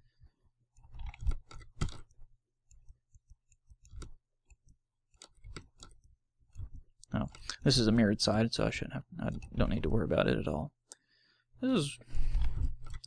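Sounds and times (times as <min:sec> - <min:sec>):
mouse and keyboard clicks: 0:00.7 - 0:07.6, 0:12.3 - 0:13.0.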